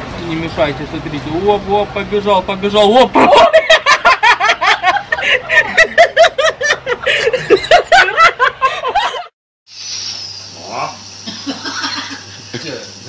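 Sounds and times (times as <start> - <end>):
woman laughing hard: 3.2 - 9.3.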